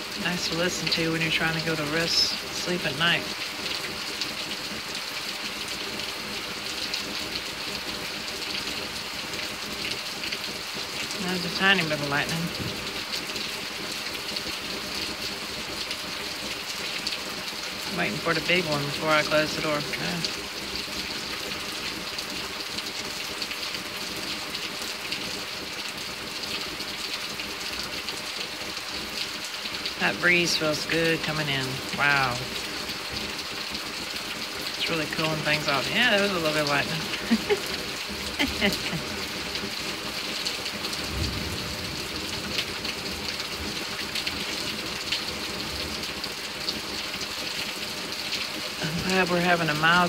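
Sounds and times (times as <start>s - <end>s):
close raindrops splashing: 0.0s - 50.0s
heavy rain: 0.0s - 50.0s
low thunder rumbles: 41.0s - 42.5s.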